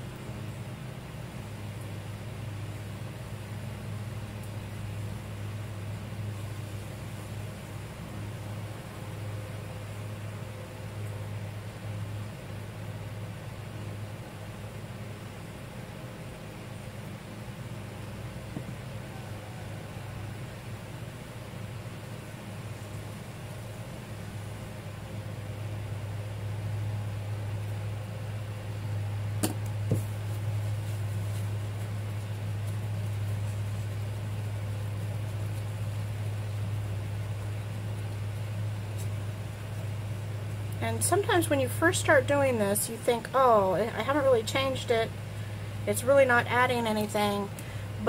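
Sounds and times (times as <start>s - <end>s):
low hum: 0.0s - 48.0s.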